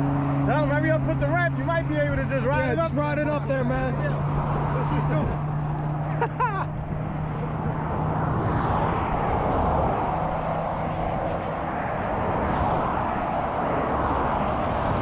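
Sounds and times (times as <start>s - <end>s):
highway traffic rushing: 0.0s - 15.0s.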